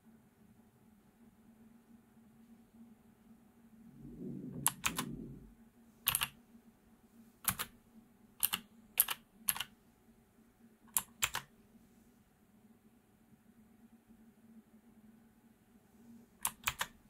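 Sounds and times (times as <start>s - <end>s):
low rumble: 3.7s - 5.7s
clicky keyboard key presses: 4.6s - 5.1s, 6.1s - 6.3s, 7.4s - 7.7s, 8.4s - 9.7s, 10.9s - 11.5s, 16.4s - 17.0s.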